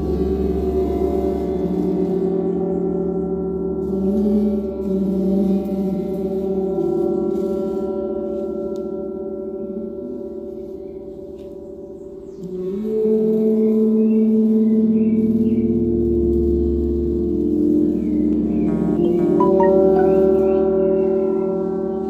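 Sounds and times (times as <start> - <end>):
gong ringing: 18.6 - 20.6.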